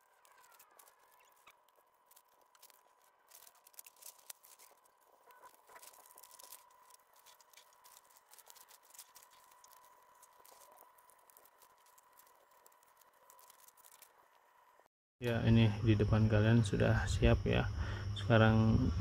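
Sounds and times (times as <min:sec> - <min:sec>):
plastic film crinkling: 0:00.0 - 0:14.8.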